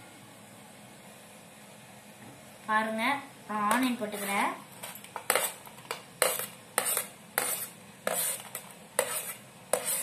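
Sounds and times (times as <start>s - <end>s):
spoon scraping plate: 4.2s - 5.6s, 6.2s - 10.0s.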